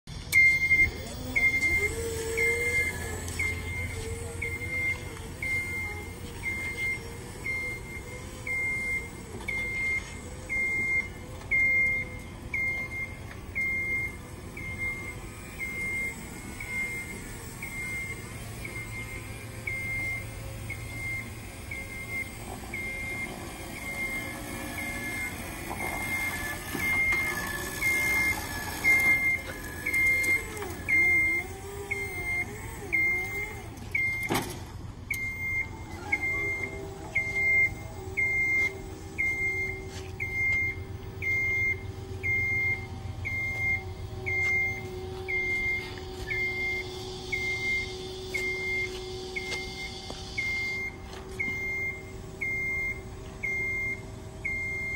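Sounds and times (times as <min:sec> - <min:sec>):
hydraulic pump hum: 0:00.1 - 0:54.9
lift motion alarm beeping: 0:00.2 - 0:54.9.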